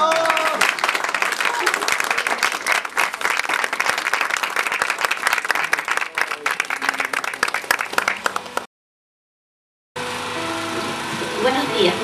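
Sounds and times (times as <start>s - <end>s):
people applauding: 0.0s - 8.7s.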